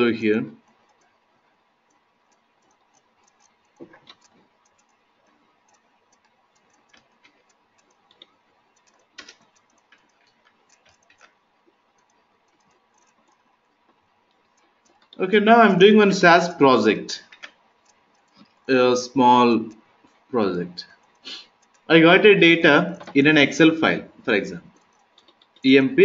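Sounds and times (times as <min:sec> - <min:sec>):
computer mouse clicks: 0:00.0 - 0:15.2, 0:17.1 - 0:18.7, 0:19.6 - 0:21.9, 0:22.9 - 0:23.3, 0:24.1 - 0:25.7.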